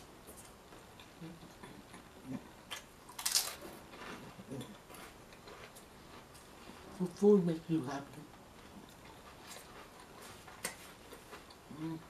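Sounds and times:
potato chips crunching: 2.7s - 4.3s.

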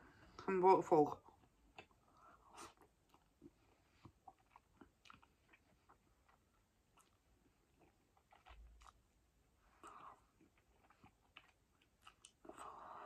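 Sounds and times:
person chewing and slurping noodles: 1.3s - 13.0s.

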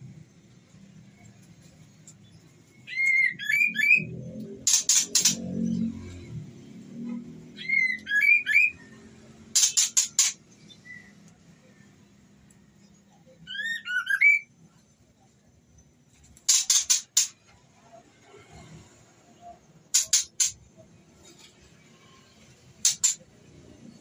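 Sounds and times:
harsh rasping bird notes: 2.9s - 6.0s, 9.5s - 10.5s, 16.5s - 17.4s, 19.9s - 20.6s, 22.8s - 23.2s
rising whistled bird notes: 7.6s - 9.0s.

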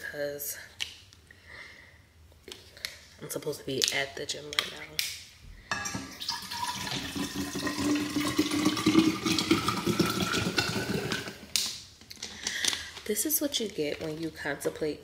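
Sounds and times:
water running into a bottle: 5.8s - 11.6s.

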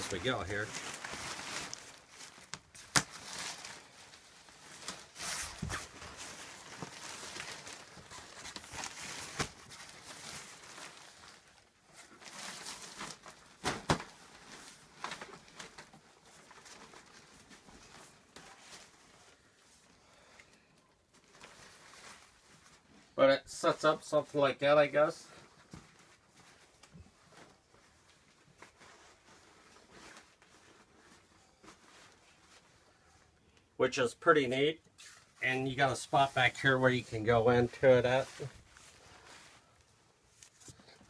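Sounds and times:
nylon fabric rustling and flapping: 0.0s - 19.9s, 25.4s - 33.4s.

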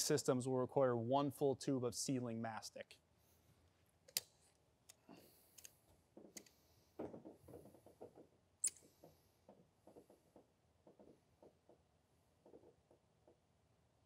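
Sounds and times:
tube handling taps and rustling: 5.9s - 13.4s.

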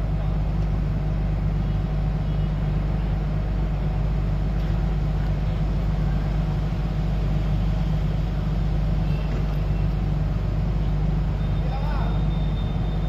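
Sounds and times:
diesel engine droning: 0.0s - 13.0s.

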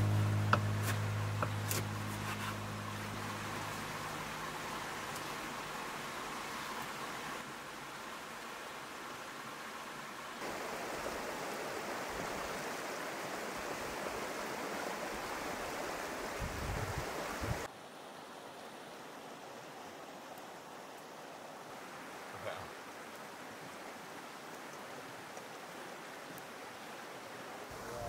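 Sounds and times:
wind buffeting microphone: 16.4s - 17.7s.

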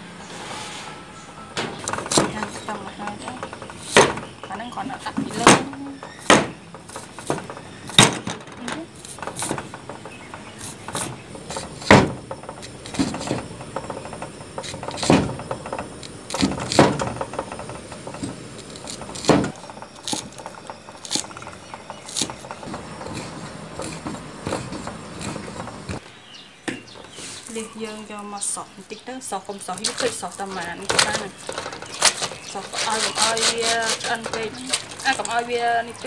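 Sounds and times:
knife chopping on wooden board: 1.8s - 2.6s, 5.2s - 8.3s, 9.0s - 9.8s, 10.6s - 13.5s, 14.6s - 15.5s, 16.3s - 17.7s, 18.7s - 20.4s, 22.1s - 26.0s.

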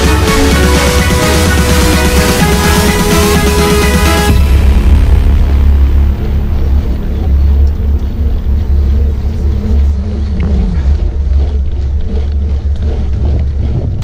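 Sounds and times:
bike tyre and riding noise: 6.1s - 14.0s.

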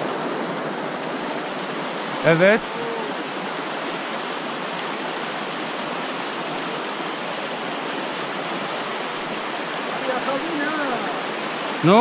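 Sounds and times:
stream rushing over rapids: 0.0s - 12.0s.

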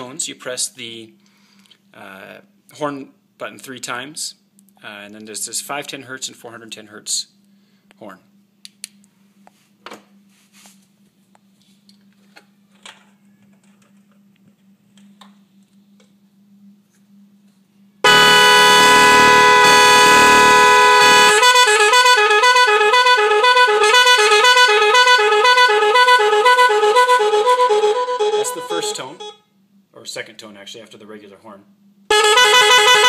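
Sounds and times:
two-note car horn blast: 18.0s - 29.5s, 32.1s - 33.0s
warbling horn tone: 18.0s - 29.5s, 32.1s - 33.0s.

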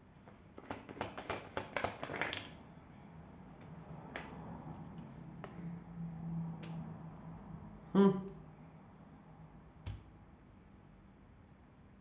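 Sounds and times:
playing cards clicking: 0.6s - 2.5s.

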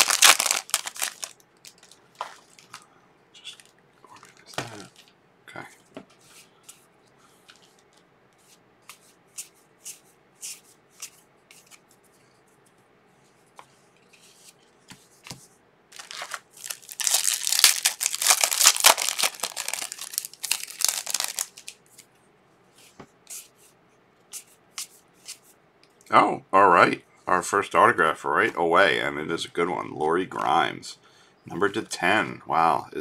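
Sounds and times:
foil wrapper tearing and crinkling: 0.0s - 2.8s, 16.0s - 21.8s.

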